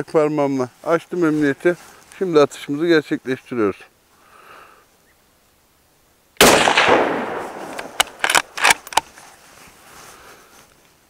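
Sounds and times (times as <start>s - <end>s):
rifle shot: 6.4s - 8.9s
rifle bolt metallic clicks: 6.4s - 9.1s.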